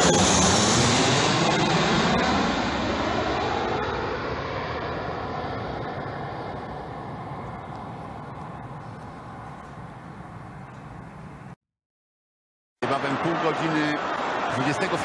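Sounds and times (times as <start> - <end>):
jet airliner engines rushing: 0.0 - 11.6.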